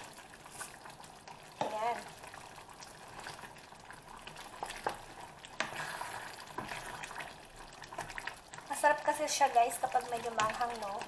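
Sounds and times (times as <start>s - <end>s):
stew sloshing: 1.6s - 8.8s.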